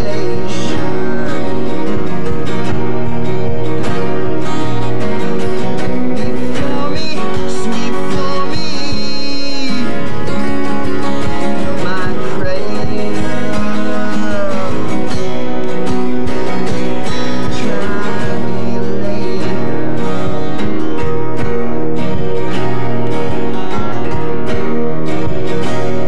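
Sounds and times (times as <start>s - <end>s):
man singing: 0.0s - 3.6s, 5.7s - 21.4s
acoustic guitars playing: 0.0s - 26.0s.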